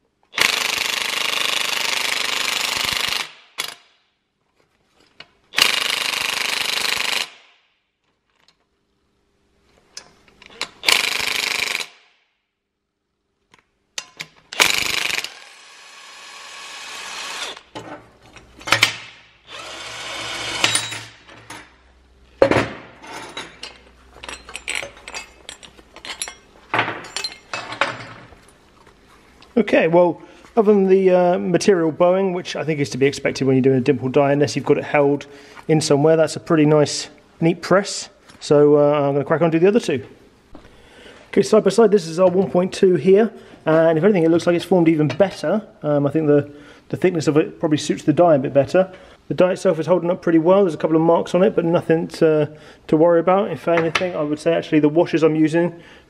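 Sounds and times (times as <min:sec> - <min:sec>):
impact wrench hammering: 0:00.4 - 0:03.9, 0:05.6 - 0:07.6, 0:10.8 - 0:12.1.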